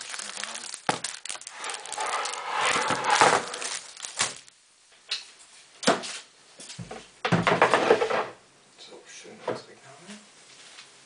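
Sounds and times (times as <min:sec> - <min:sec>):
plastic sheet crinkling: 0:00.0 - 0:04.6.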